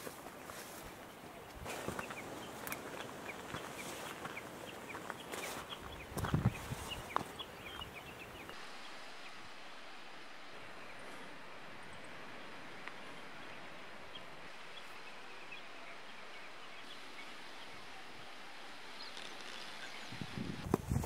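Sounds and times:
footsteps on gravelly trail: 0.0 - 8.5, 20.7 - 21.0
outdoor ambient hiss: 0.0 - 21.0.

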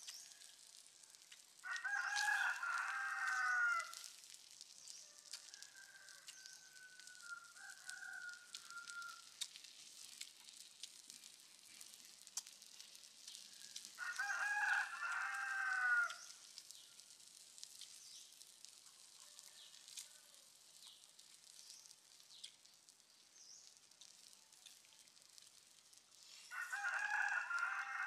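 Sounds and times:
rooster crowing: 1.6 - 4.1, 5.1 - 9.3, 13.5 - 16.3, 19.2 - 20.5, 26.5 - 28.0.

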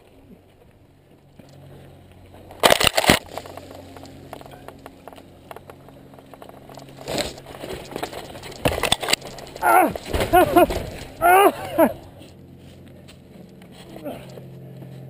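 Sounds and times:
bike rattling: 0.0 - 15.0
bike tyres crunching on dirt: 0.0 - 15.0
crackling scraping bursts: 2.4 - 11.2.

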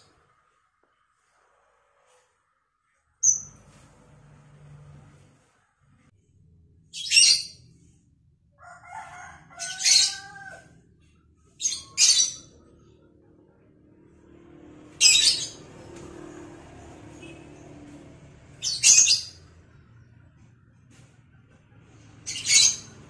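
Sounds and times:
lovebird screeching: 9.5 - 10.7, 11.6 - 12.5.

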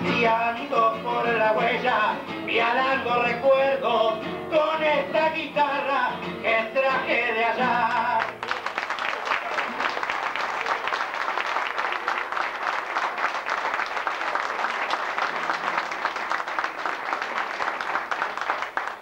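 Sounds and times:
audience applauding: 7.8 - 19.0.

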